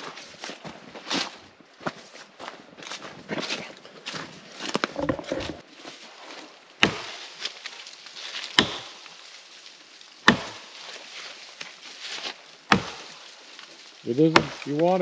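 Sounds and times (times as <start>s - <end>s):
axe chopping wood: 6.8s - 7.3s, 8.3s - 9.1s, 10.2s - 10.7s, 12.2s - 13.2s, 14.3s - 14.7s.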